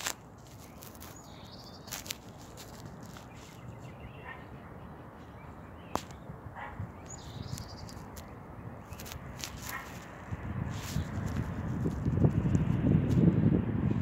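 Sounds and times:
small bird chirping: 0.0 - 10.0.

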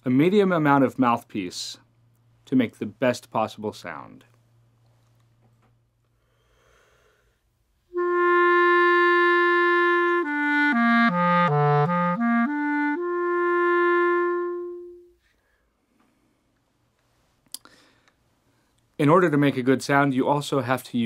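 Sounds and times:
clarinet playing: 7.9 - 15.2.

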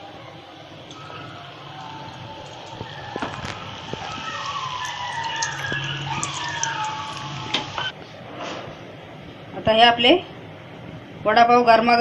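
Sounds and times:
faint wavering tones: 0.0 - 7.9
food deep-frying in hot oil: 0.0 - 7.9.

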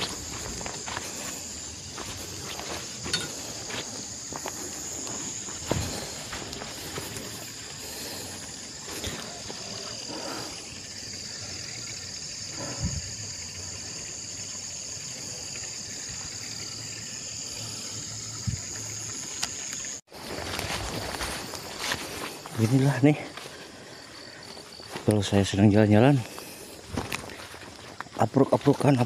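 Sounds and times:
footsteps on grass: 0.0 - 9.7, 20.1 - 25.3, 26.1 - 29.0
insects chorus: 0.0 - 29.0.

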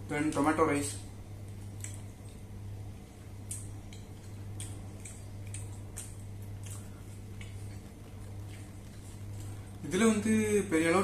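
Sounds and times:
steady low hum: 0.0 - 11.0
wet chewing smacks: 3.4 - 9.8.

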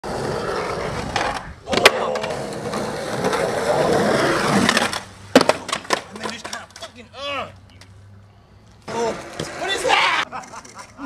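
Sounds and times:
skateboard rolling on concrete: 0.0 - 7.1, 8.6 - 11.0
skateboard clacks: 4.6 - 7.0.

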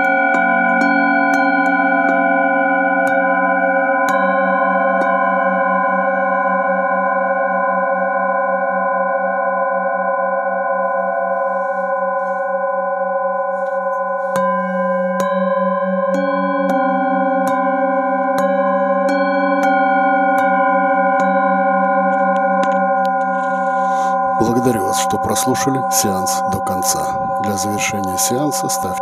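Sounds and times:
mallet striking singing bowls: 0.0 - 5.5, 13.9 - 25.3
singing bowls ringing: 0.0 - 29.0.

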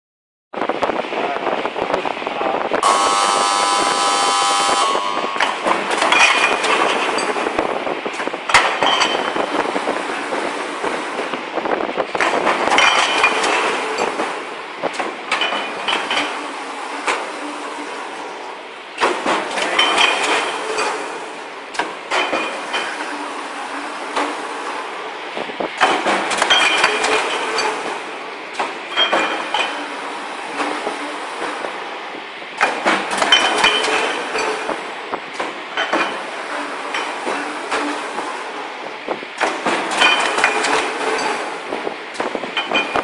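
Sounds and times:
steady high multi-pitch tone: 2.8 - 5.5
machine clatter and knocks: 5.4 - 31.9, 32.5 - 43.0.

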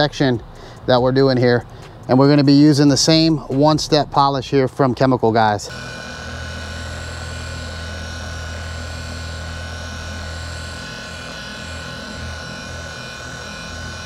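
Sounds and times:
polisher motor humming with whine: 5.6 - 14.0.

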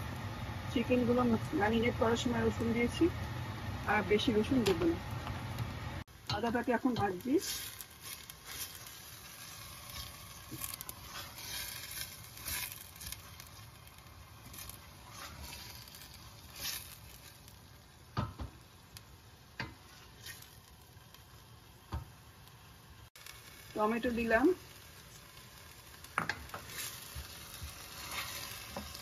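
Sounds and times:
paste frying in oil: 0.0 - 29.0
utensil scraping pan: 6.9 - 13.7, 14.4 - 17.3, 26.2 - 29.0.

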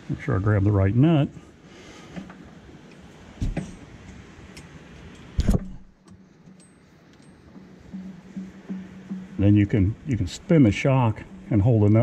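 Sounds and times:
low steady hum: 0.0 - 12.0
metal handling knocks and clicks: 2.2 - 9.4.

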